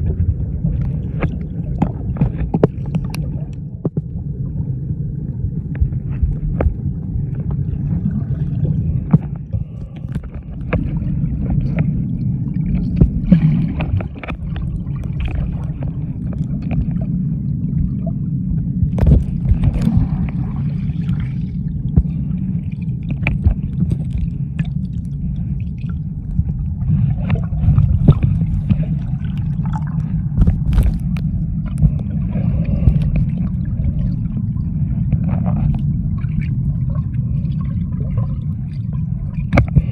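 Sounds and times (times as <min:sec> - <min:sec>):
underwater rumble of moving water: 0:00.0 - 0:39.9
water gurgling: 0:00.0 - 0:39.9
sharp underwater clicks: 0:30.4 - 0:32.1.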